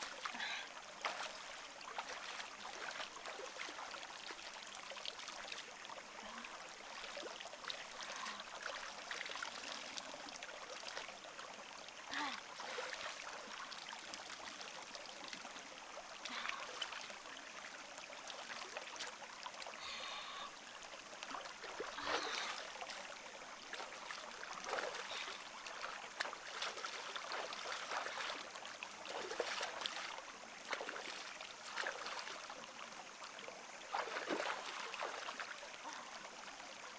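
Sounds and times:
water splashing: 0.0s - 10.3s, 21.2s - 32.4s, 33.8s - 36.0s
rocky stream running: 0.0s - 36.9s.

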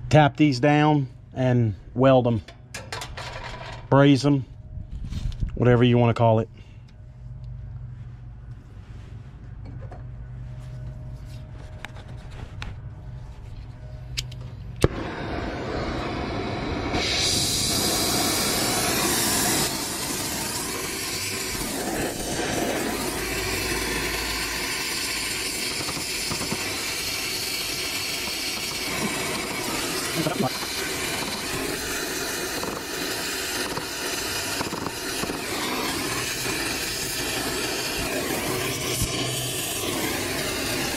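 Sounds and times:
low hum: 0.9s - 40.9s
torch flame hissing: 14.8s - 40.9s
torch lighting pop: 14.8s - 40.9s.

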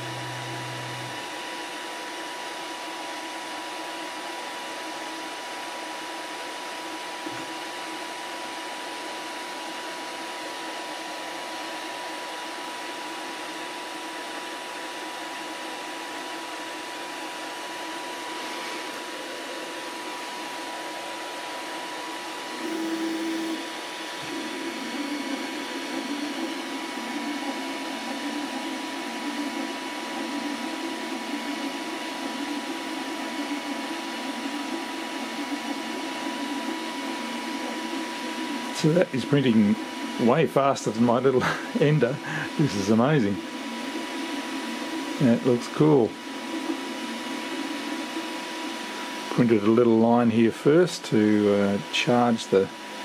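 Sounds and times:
stepper motors buzzing whine: 0.0s - 1.4s, 18.2s - 40.3s
printer fans whirring: 0.0s - 53.0s.

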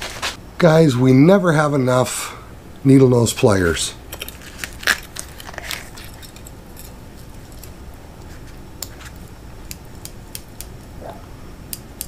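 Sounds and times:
low steady hum: 0.0s - 12.0s
packaging handling noises: 4.1s - 9.2s.

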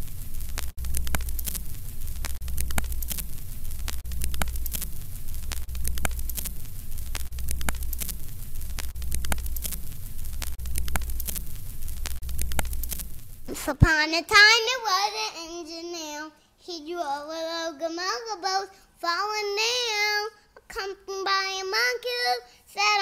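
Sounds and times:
static crackles and clicks: 0.0s - 16.2s
low electrical hum: 0.0s - 19.9s.

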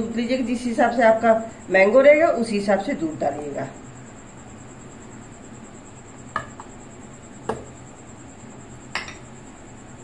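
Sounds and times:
kitchenware knocking and clinking: 9.0s - 9.2s.

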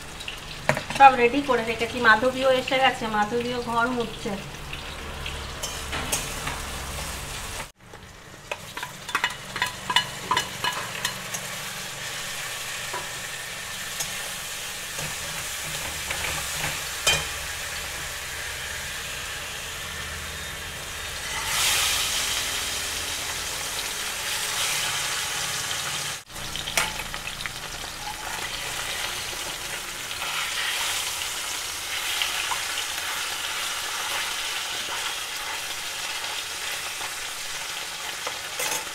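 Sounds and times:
food sizzling in hot oil: 0.0s - 38.9s
utensil clicking against pan: 8.5s - 11.5s.

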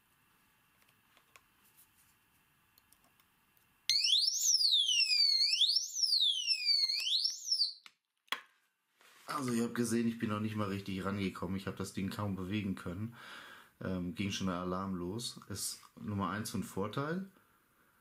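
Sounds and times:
electronic alarm siren whooping: 3.9s - 7.8s.

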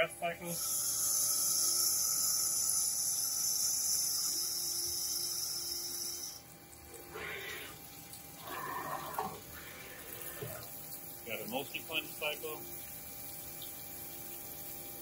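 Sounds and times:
high hiss of coolant: 0.4s - 12.6s.

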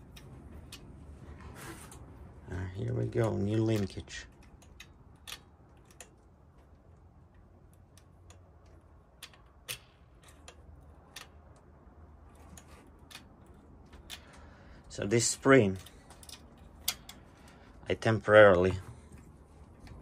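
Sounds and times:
small metal parts clicking: 3.0s - 17.6s.

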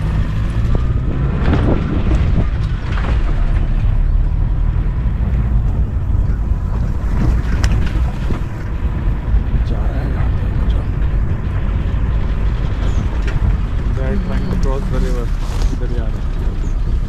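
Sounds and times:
vehicle engine and tyres rumbling: 0.0s - 17.0s
wind buffeting microphone: 0.0s - 17.0s
body knocks and rattles: 5.6s - 17.0s.

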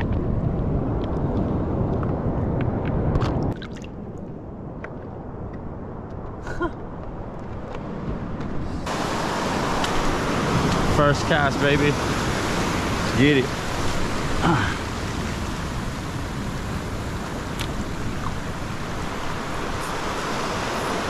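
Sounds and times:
wind buffeting microphone: 0.0s - 21.0s
ocean surf hissing: 8.7s - 21.0s.

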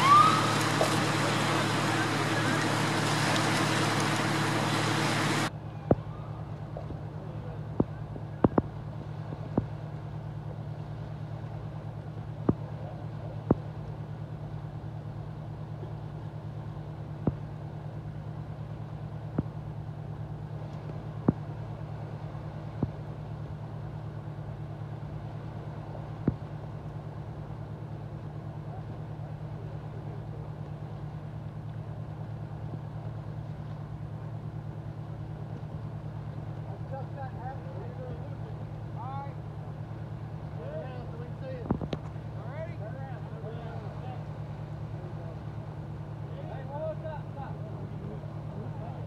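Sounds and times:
engine humming: 0.0s - 49.0s.

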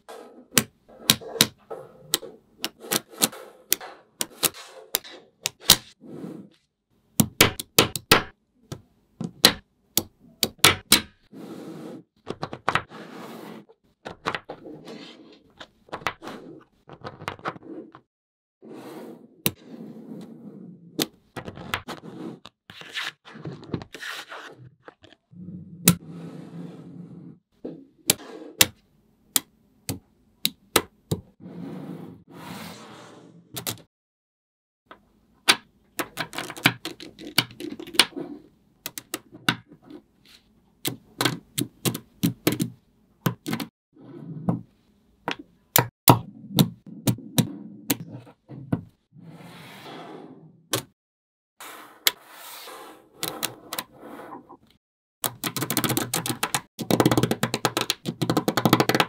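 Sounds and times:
magnetic balls sliding on table: 5.9s - 6.6s, 11.2s - 12.1s, 12.9s - 13.7s, 18.6s - 21.0s, 21.8s - 22.6s, 25.4s - 28.6s, 31.4s - 33.5s, 46.4s - 50.6s, 51.6s - 54.8s.

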